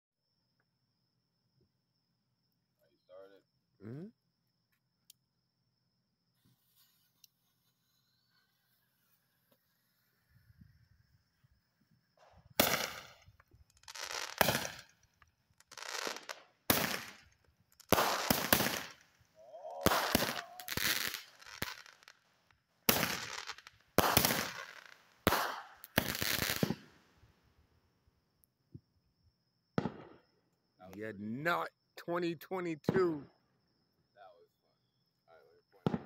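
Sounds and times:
fireworks bangs: 12.2s - 15.0s, 15.7s - 19.1s, 19.7s - 22.1s, 22.9s - 27.0s, 29.8s - 30.2s.

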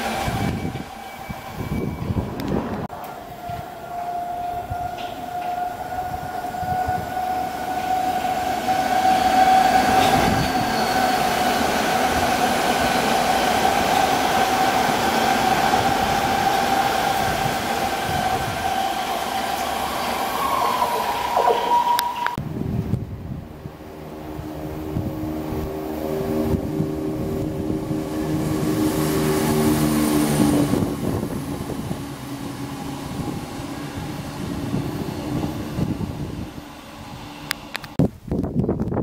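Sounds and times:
train passing with rumble: 0.0s - 38.0s
high two-note whine: 20.5s - 22.4s, 23.3s - 29.9s.

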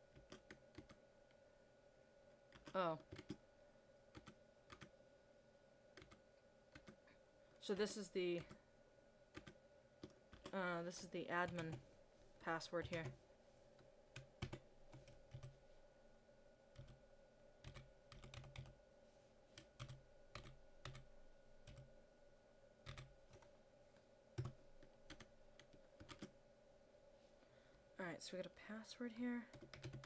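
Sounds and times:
faint steady hum: 0.0s - 30.0s
typing on computer keyboard: 0.1s - 1.0s, 2.5s - 3.4s, 4.1s - 4.9s, 6.0s - 7.0s, 9.3s - 10.6s, 14.2s - 15.6s, 16.8s - 17.0s, 17.6s - 18.7s, 19.6s - 21.9s, 22.8s - 23.5s, 24.4s - 26.3s, 29.5s - 30.0s.

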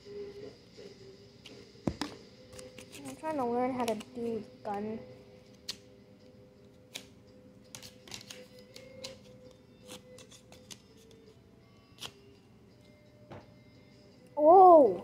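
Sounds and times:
faint background music: 0.0s - 15.0s
card clicking and tapping: 7.7s - 11.2s.

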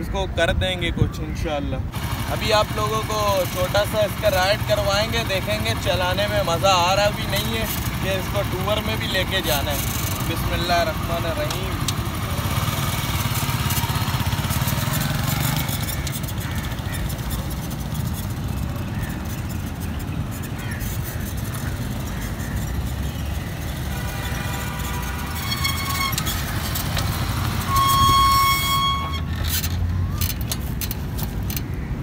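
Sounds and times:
motorcycle engine running: 1.9s - 31.8s
motorcycle horn beeps: 23.6s - 29.4s.

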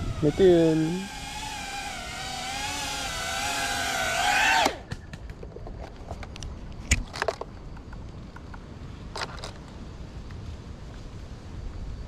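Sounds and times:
drone motors whining: 0.0s - 4.9s.

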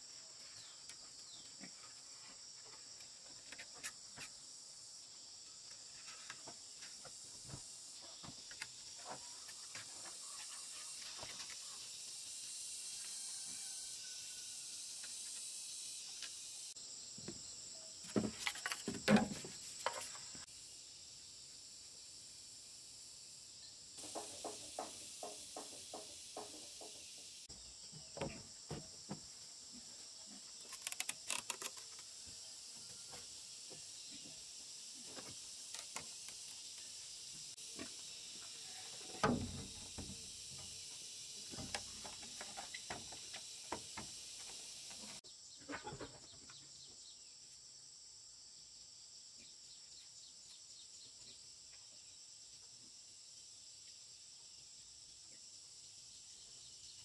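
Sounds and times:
insects chirring: 0.0s - 57.0s
bamboo poles knocking: 18.1s - 20.2s, 24.0s - 27.1s, 39.0s - 40.6s.

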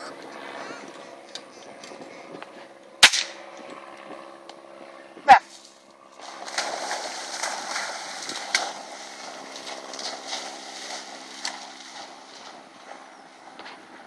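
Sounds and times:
low motor hum: 0.0s - 14.0s.

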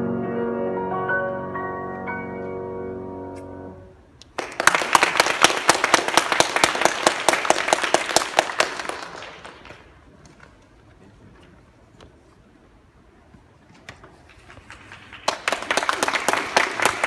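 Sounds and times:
piano chord: 0.0s - 4.0s
audience applauding: 4.3s - 10.0s, 14.3s - 17.0s.

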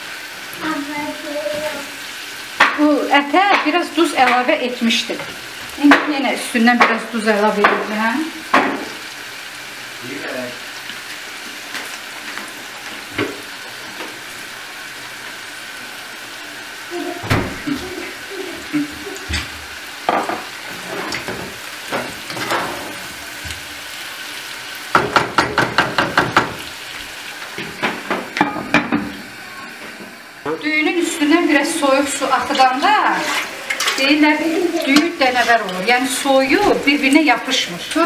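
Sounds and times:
chicken and onions sizzling: 0.0s - 38.0s
wooden spatula scraping a pot: 20.6s - 21.3s, 32.4s - 35.8s.

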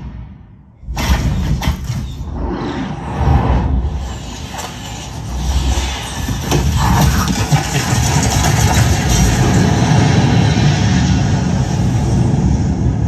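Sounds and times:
heavy low rumble: 0.0s - 13.0s.

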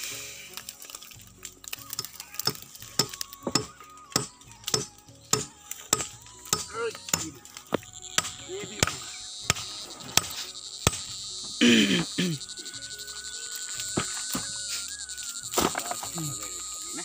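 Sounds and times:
machete chopping wood: 1.9s - 11.1s, 15.6s - 16.2s.

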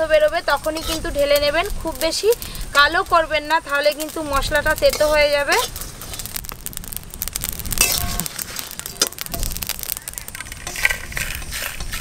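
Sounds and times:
spices crackling in a wok: 0.0s - 12.0s
scraping and clatter: 4.8s - 6.6s, 7.7s - 12.0s.

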